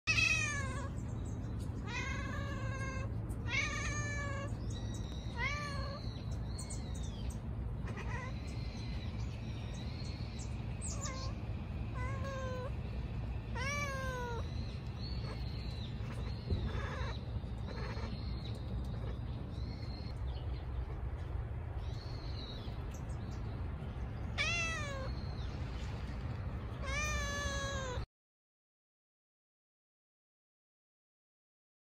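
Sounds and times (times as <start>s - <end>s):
cat meowing: 0.1s - 1.0s, 1.8s - 6.2s, 7.8s - 8.6s, 10.9s - 12.8s, 13.5s - 19.2s, 24.3s - 25.3s, 26.7s - 28.1s.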